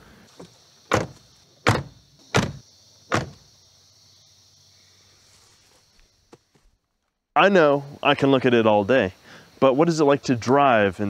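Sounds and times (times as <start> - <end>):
car doors shutting: 0.4 - 3.4.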